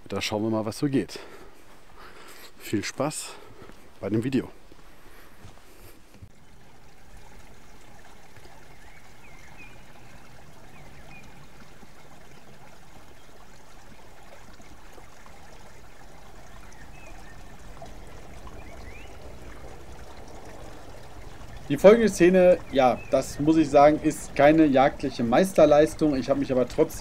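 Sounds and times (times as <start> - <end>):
rushing outdoor ambience: 16.9 - 27.0.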